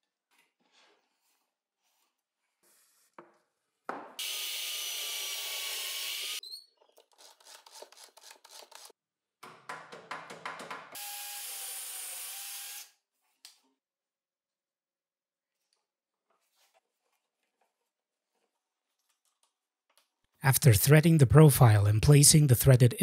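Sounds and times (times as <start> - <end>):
power drill running: 4.2 - 6.4, 11.0 - 13.0.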